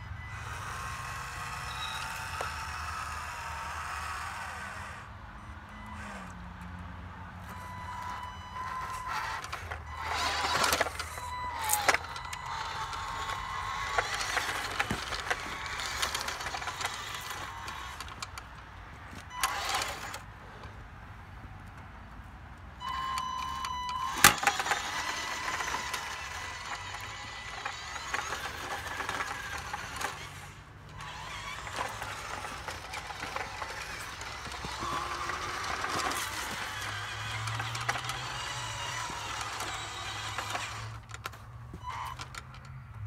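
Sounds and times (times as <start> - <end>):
electric motor whining: 0.0 - 18.5, 19.1 - 20.3, 22.8 - 42.7
tyres crunching on gravel: 7.4 - 20.3, 22.9 - 42.6.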